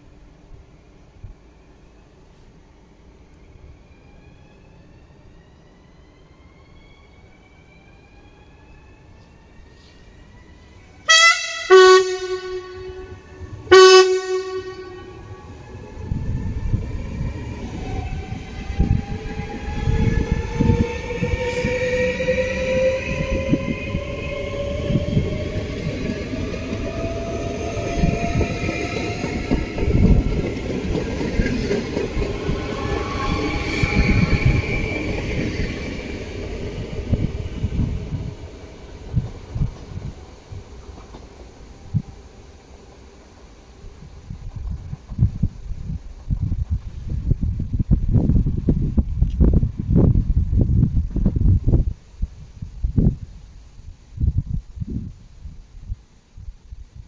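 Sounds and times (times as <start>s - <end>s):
train wheels rumbling: 7.8s - 52.6s
train horn blasts: 11.0s - 15.6s.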